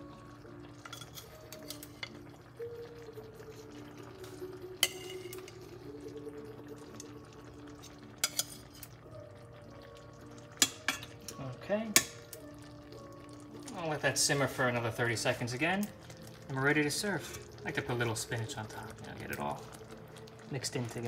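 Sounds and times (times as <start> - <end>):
metal tongs scraping a plate: 0.8 - 2.3, 4.8 - 5.6, 7.8 - 9.0, 17.2 - 17.5.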